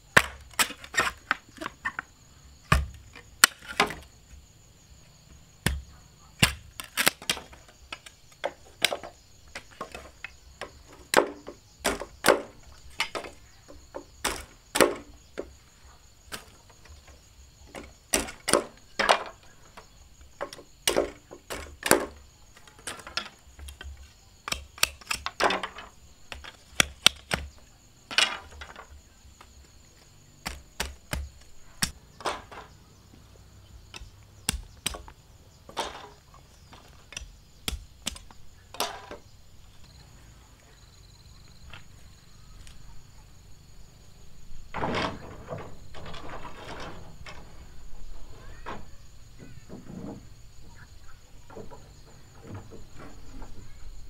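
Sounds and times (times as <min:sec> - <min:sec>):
machete chopping bamboo: 0:00.1 - 0:01.7, 0:02.7 - 0:04.0, 0:05.6 - 0:10.0, 0:10.6 - 0:13.3, 0:13.9 - 0:15.1, 0:17.7 - 0:19.2, 0:22.8 - 0:28.8, 0:30.4 - 0:32.6, 0:33.9 - 0:35.1, 0:36.8 - 0:39.1
bamboo splitting crackle: 0:00.2 - 0:02.0, 0:02.7 - 0:04.1, 0:05.6 - 0:13.4, 0:20.4 - 0:29.6, 0:33.9 - 0:39.2.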